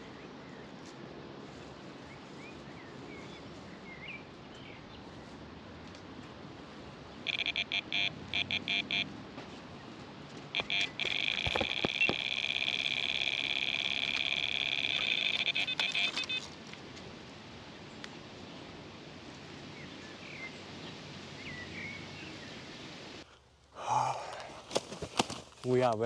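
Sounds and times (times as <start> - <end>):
electronic bite alarm beeping: 7.3 - 9.1, 10.6 - 16.5
faint chirps: 7.3 - 9.1, 10.6 - 16.4.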